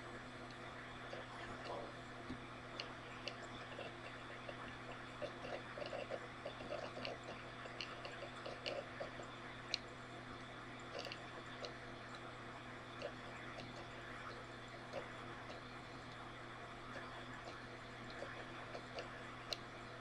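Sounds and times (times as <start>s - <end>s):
low hum and hiss: 0.0s - 20.0s
small clicks: 10.9s - 12.2s, 16.9s - 19.7s.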